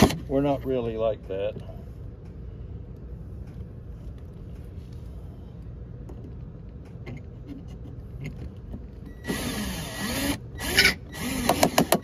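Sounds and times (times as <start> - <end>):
power driver motor whirring: 9.2 - 12.0.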